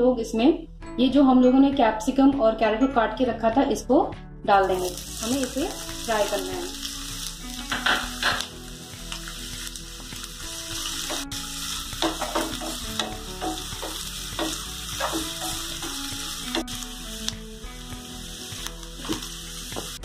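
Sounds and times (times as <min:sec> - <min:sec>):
vegetables sizzling in oil: 0:04.6 - 0:20.0.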